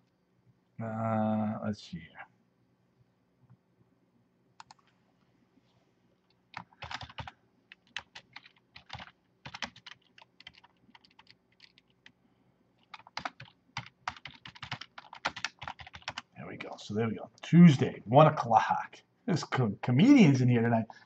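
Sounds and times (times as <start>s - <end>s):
typing on computer keyboard: 4.6s - 4.9s, 6.5s - 12.2s, 12.8s - 16.2s.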